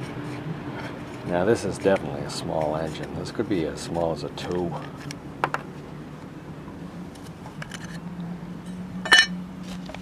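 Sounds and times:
steady low hum: 0.0 - 10.0
sharp ringing metal clink: 8.7 - 9.4.

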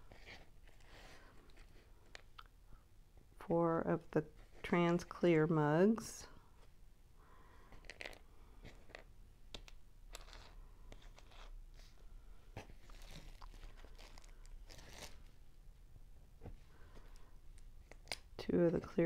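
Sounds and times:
plastic bag crinkling: 12.8 - 15.3.

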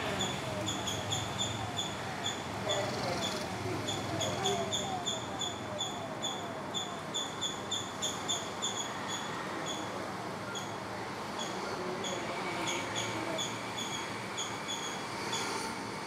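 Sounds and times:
animal chirping: 0.0 - 9.9.

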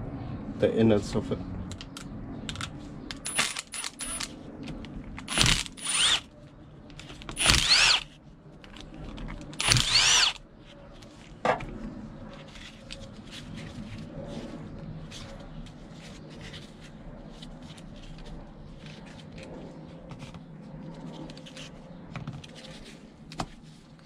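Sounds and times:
cordless drill whirring: 3.3 - 4.3, 5.2 - 6.3, 7.3 - 8.1, 9.6 - 10.4.

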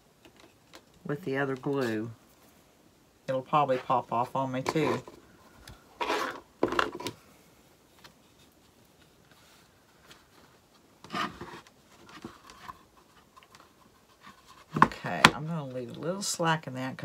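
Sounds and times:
cloth scraping against wood: 3.6 - 5.3, 5.9 - 7.2, 8.0 - 15.2.

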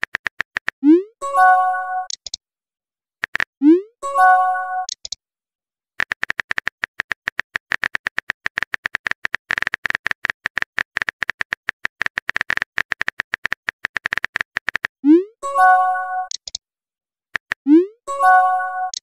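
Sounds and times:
phone keyboard clicks: 2.1 - 2.4, 4.9 - 5.2, 6.0 - 14.9, 16.3 - 16.6.

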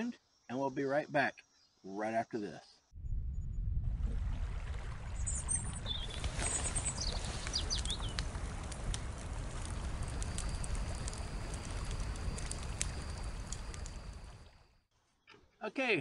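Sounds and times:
low wind rumble: 3.0 - 14.6
bird chirps: 5.2 - 8.2
scattered ticks: 6.2 - 14.3.

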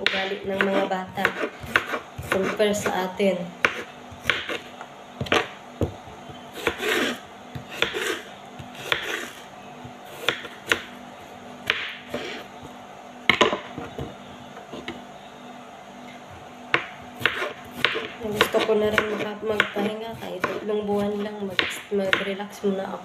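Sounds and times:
knife chopping on wooden board: 0.0 - 2.9, 3.6 - 10.9, 11.6 - 12.4, 16.7 - 22.4.

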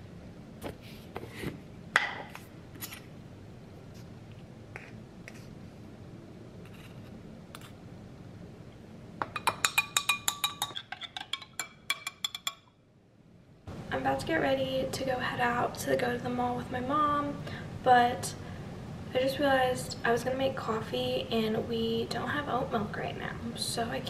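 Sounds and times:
metal spoon clinking in glass: 9.3 - 12.7.

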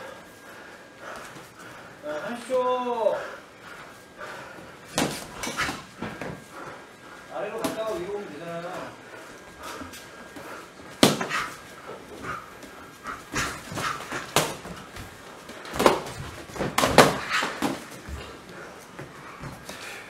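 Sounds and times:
person breathing: 0.0 - 2.4, 3.0 - 7.3, 8.9 - 14.2, 17.3 - 20.0
boxing gloves hitting: 4.9 - 6.4, 11.0 - 11.6, 13.2 - 15.1, 15.7 - 18.2.

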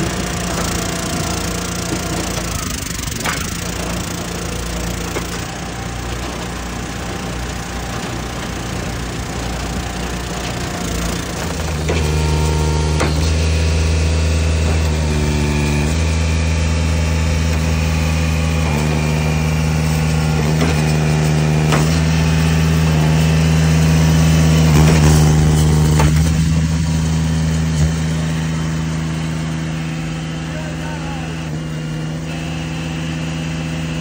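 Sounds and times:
log splitter engine running: 0.0 - 34.0
wood splitting knock: 12.9 - 13.4, 20.4 - 22.2, 24.7 - 26.7.

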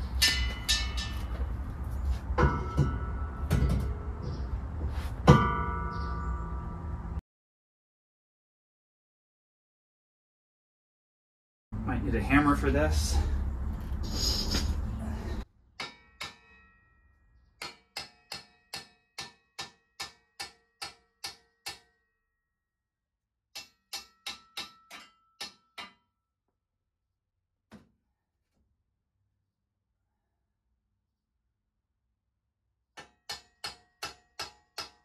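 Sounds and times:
hammer tapping on steel: 23.6 - 26.0.

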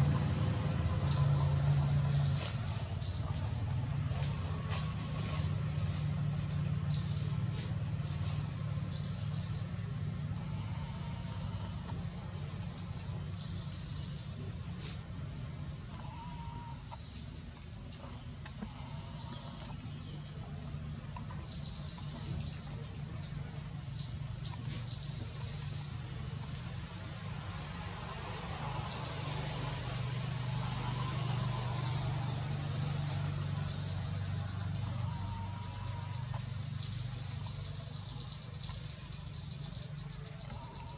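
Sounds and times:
insects buzzing: 0.0 - 40.9
low steady hum: 0.0 - 40.9.

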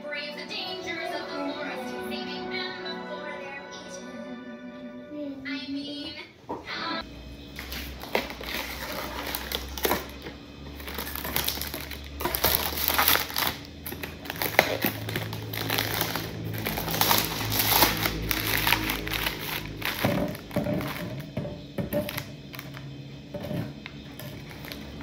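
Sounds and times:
background music: 0.0 - 7.0, 14.4 - 21.2
plastic shrink-wrap crinkling: 7.6 - 21.3, 21.9 - 25.0
plastic bottles knocking together: 18.8 - 22.7.

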